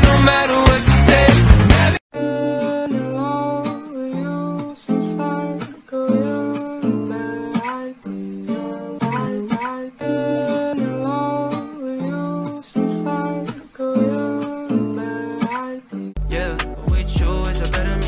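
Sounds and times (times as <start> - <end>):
music with heavy bass: 0.0 - 2.0, 16.2 - 18.0
acoustic guitar song: 0.0 - 18.0.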